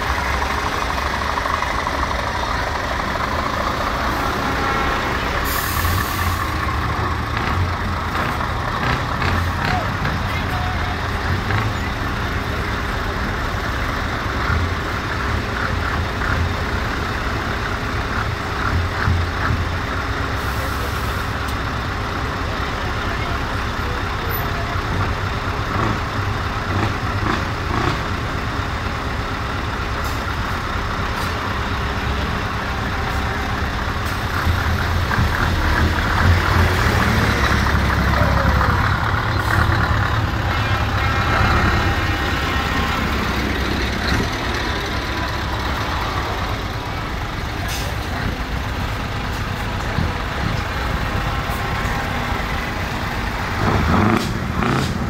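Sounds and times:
truck diesel engines droning: 0.0 - 55.0.

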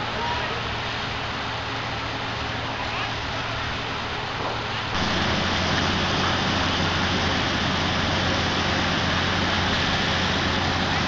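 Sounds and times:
steady rushing noise: 0.0 - 11.0
low hum: 4.9 - 11.0.

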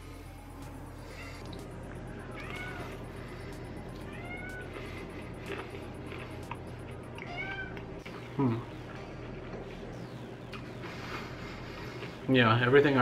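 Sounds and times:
steady low hum: 0.0 - 13.0
cat meowing: 2.3 - 3.0, 4.0 - 4.7, 7.2 - 7.8.

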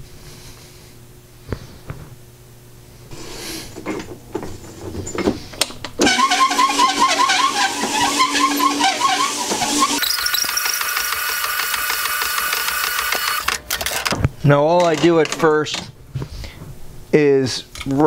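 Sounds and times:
honing machine humming: 3.2 - 15.5.

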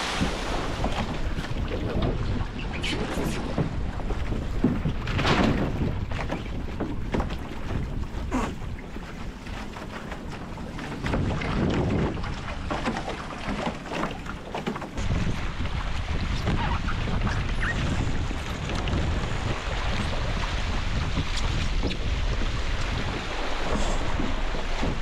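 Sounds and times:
water rushing and splashing: 0.0 - 25.0
wind buffeting microphone: 0.0 - 25.0.

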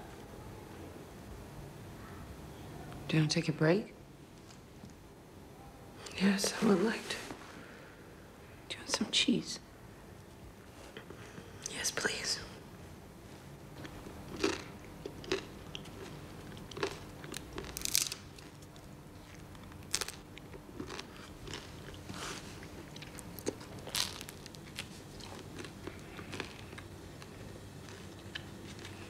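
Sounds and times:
crunchy bread chewing: 13.7 - 29.0.

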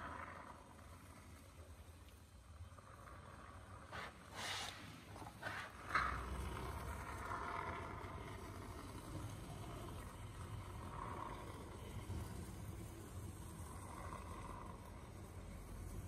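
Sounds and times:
spray foam hissing: 4.0 - 5.7.

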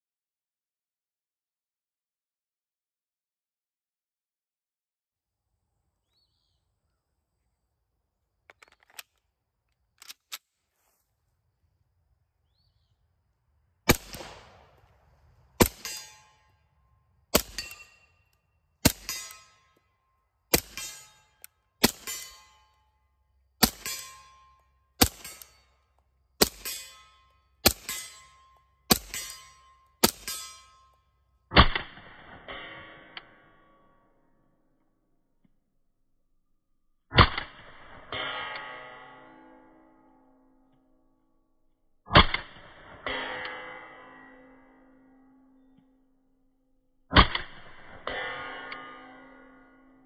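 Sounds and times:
metal handling clicks: 8.5 - 10.4
suppressed pistol shots: 13.9 - 15.0, 15.6 - 16.2, 17.3 - 17.9
short metallic ring: 15.7 - 23.1, 26.5 - 31.2.

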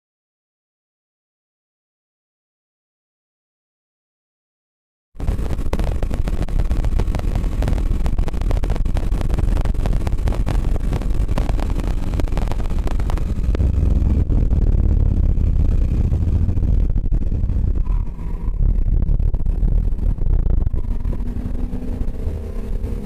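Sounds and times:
tyre and road noise: 5.2 - 23.0
wind buffeting: 5.2 - 23.0.

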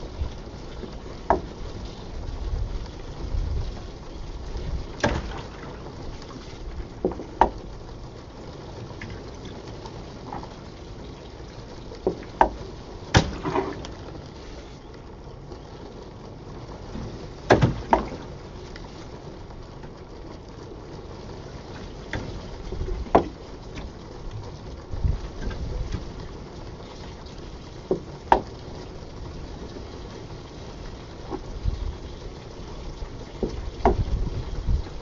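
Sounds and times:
sharp knocks in pipe: 17.5 - 18.1, 28.3 - 28.5.

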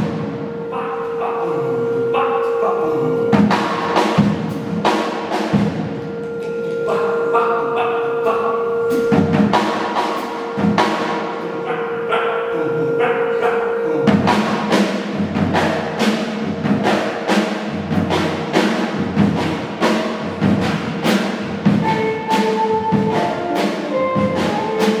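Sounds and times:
jazz quartet playing: 0.0 - 17.1, 17.7 - 25.0
drums beating sharp hits: 3.3 - 7.0, 8.9 - 11.8, 14.1 - 25.0.

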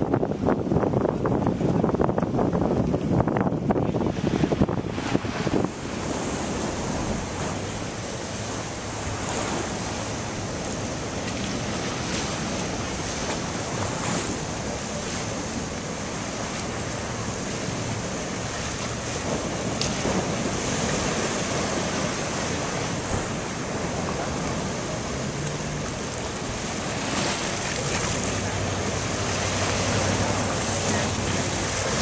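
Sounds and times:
surf breaking on seawall: 0.0 - 32.0
wind buffeting microphone: 0.0 - 32.0.

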